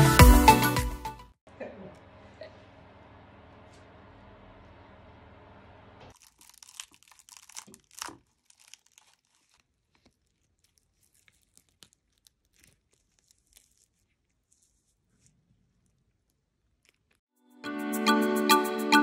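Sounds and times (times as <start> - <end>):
dried discs crackling and crinkling: 6.1 - 17.2.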